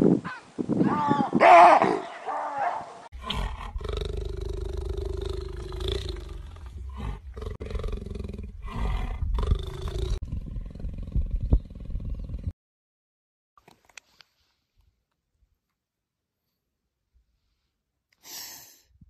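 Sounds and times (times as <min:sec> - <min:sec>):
big cat growling roar: 0:03.2 - 0:12.5.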